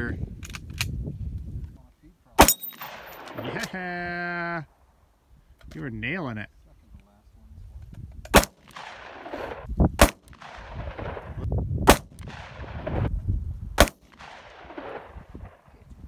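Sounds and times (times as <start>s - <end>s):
gunshots with rolling echo: 2.4s - 3.8s, 8.3s - 13.1s, 13.8s - 16.0s.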